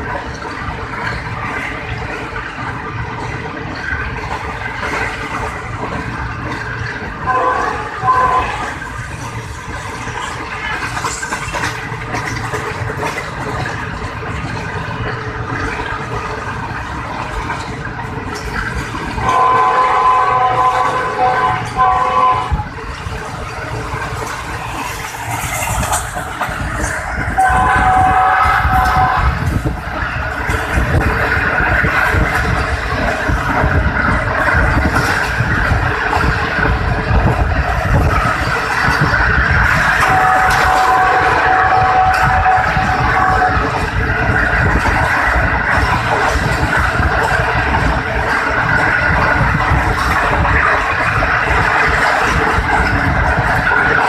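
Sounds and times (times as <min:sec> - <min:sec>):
moving train running noise: 0:00.0 - 0:54.0
locomotive horn: 0:07.2 - 0:08.7, 0:19.2 - 0:22.7, 0:27.4 - 0:29.5, 0:40.0 - 0:43.8.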